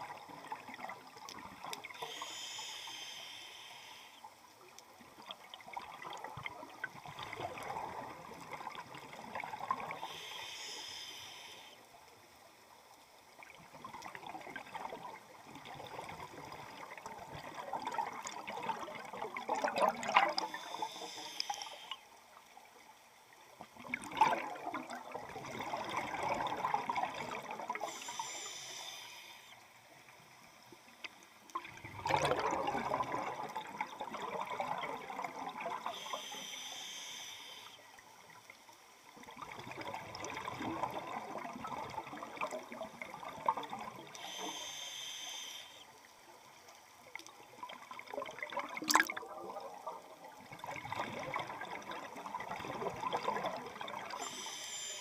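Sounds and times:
bubbling and gurgling underwater: 0:00.0 - 0:55.0
regulator inhale hiss: 0:01.8 - 0:04.4, 0:09.8 - 0:12.0, 0:20.4 - 0:22.2, 0:27.7 - 0:29.7, 0:35.7 - 0:38.0, 0:44.0 - 0:46.0, 0:54.1 - 0:55.0.

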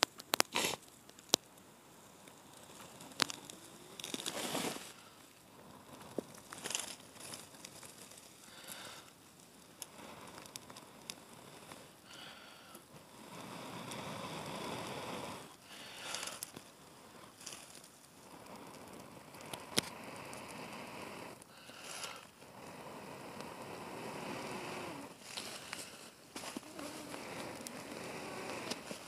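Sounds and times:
tinder crackle: 0:00.0 - 0:29.0
person blowing into tinder: 0:00.4 - 0:00.8, 0:18.2 - 0:29.0.

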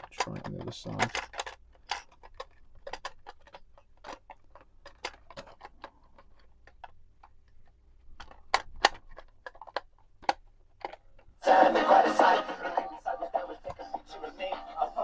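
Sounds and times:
cassette plastic clicks and clacks: 0:00.0 - 0:11.3.

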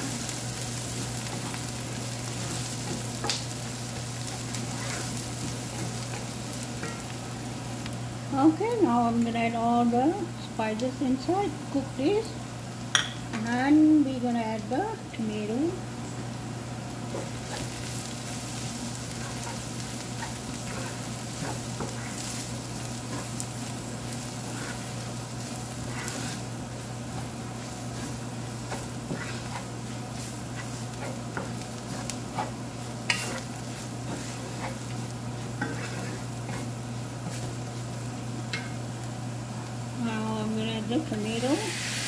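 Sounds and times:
wooden spoon scraping a pan: 0:00.0 - 0:07.2, 0:17.1 - 0:37.8
steady low hum: 0:00.0 - 0:41.7
spices sizzling in oil: 0:00.0 - 0:42.0.

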